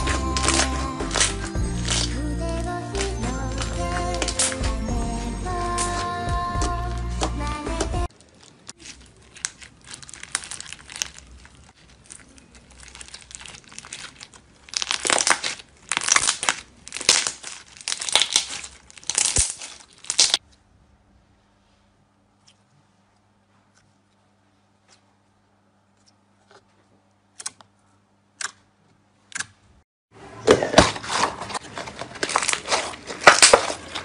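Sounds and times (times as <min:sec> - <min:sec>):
slime crackling when squeezed: 0:00.0 - 0:04.7, 0:08.1 - 0:20.4
background music: 0:00.0 - 0:08.1.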